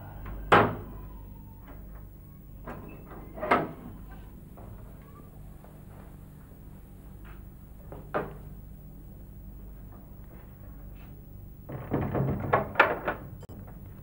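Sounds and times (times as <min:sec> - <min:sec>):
wooden door knocks and rattles: 0:11.7 - 0:13.4.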